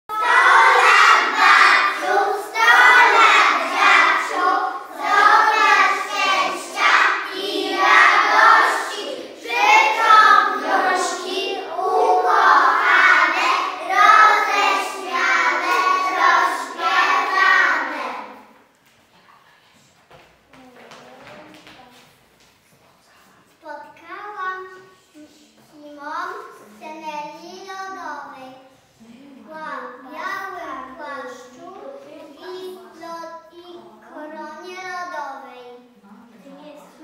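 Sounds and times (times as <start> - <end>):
children singing together: 0.1 - 18.6.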